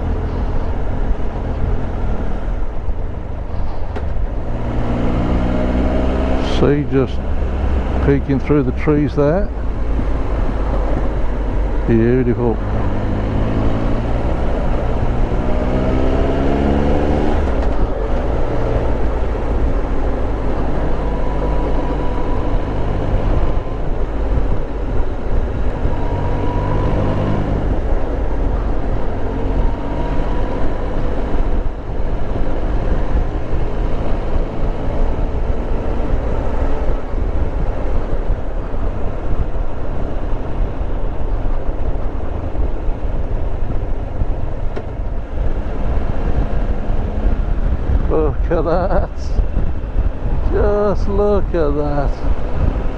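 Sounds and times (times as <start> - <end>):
wind and road noise: 0.0 - 52.9.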